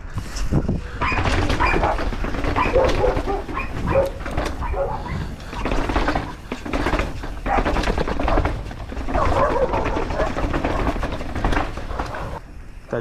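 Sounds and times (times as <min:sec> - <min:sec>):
bike tyres on dirt: 0:00.0 - 0:13.0
wind rumble: 0:00.0 - 0:13.0
dogs barking: 0:01.0 - 0:05.7, 0:07.4 - 0:11.2.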